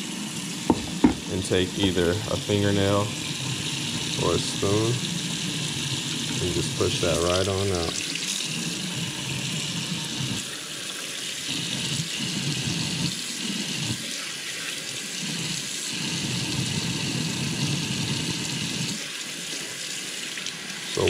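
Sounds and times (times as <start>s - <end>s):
tap running into steel sink: 0.7s - 1.3s.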